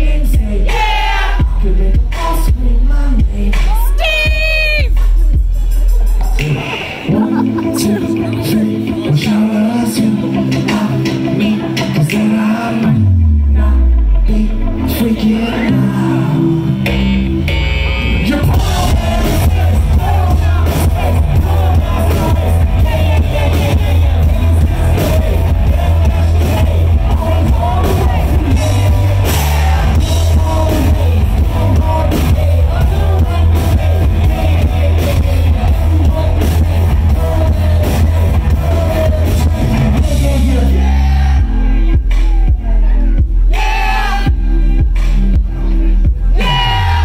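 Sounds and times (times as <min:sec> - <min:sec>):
person singing: 0:00.0 - 0:05.0, 0:06.3 - 0:47.0
live rock band playing: 0:00.0 - 0:47.0.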